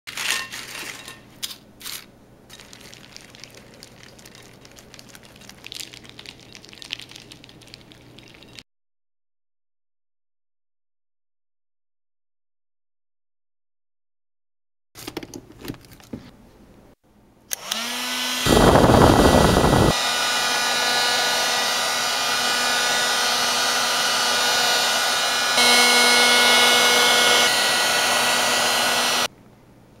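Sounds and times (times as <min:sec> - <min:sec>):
heat gun motor whine: 0:17.5 - 0:29.3
hot air rushing: 0:18.5 - 0:20.0.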